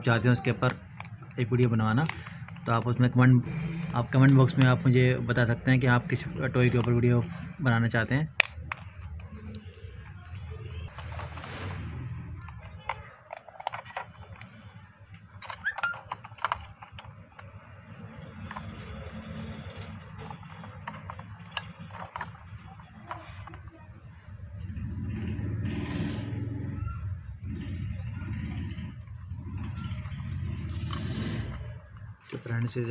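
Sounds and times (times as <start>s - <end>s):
plastic toy clicks and rattles: 0.2s - 3.3s, 6.6s - 24.3s.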